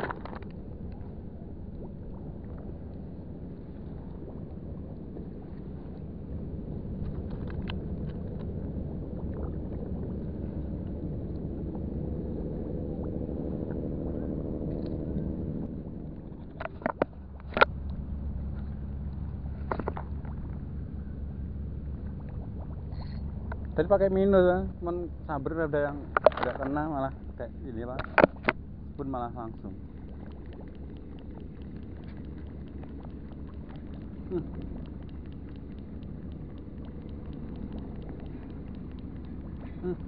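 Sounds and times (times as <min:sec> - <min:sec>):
boat engine drone: 0:00.0 - 0:40.0
sharp clicks: 0:29.8 - 0:39.8.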